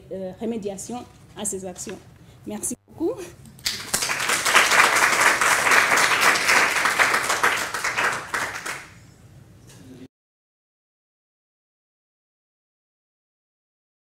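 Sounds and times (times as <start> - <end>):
audience applauding: 3.6 - 9.0.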